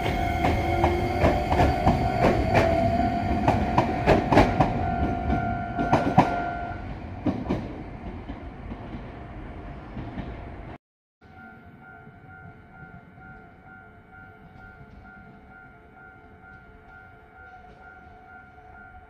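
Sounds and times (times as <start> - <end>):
wheels clacking over rail joints: 0.0 - 6.4
electric train inverter whine: 0.0 - 7.0.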